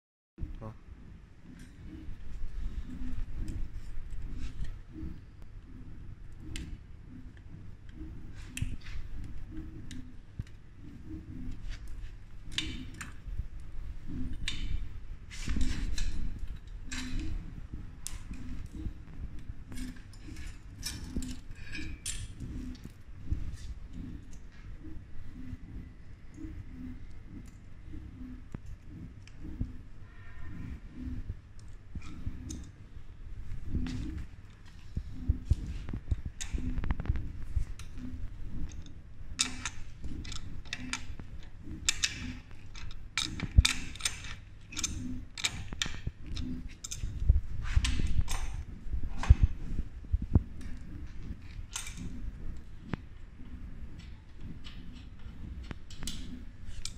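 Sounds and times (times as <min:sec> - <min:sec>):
faint low pulse: 0:00.4 - 0:42.5
steady low rumble: 0:00.4 - 0:56.9
wrench clicking and scraping: 0:19.7 - 0:22.9, 0:38.6 - 0:48.6.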